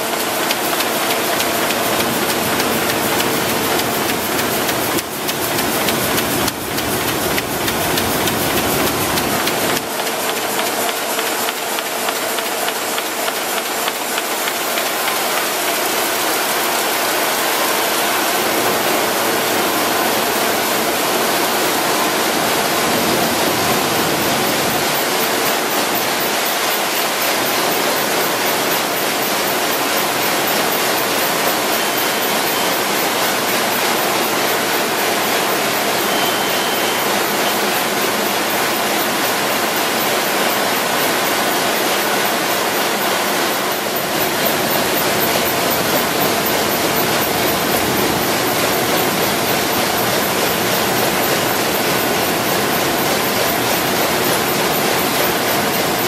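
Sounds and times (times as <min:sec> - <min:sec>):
printing press running: 0:00.0 - 0:56.0.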